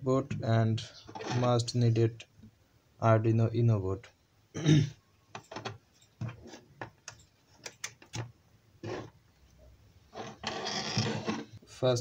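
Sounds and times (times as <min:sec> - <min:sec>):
short scrape on tabletop: 0:10.1 - 0:11.5.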